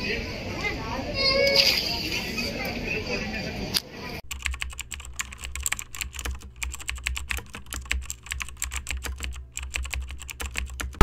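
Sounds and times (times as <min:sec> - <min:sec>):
rapid sharp clicking: 0:04.2 - 0:11.0.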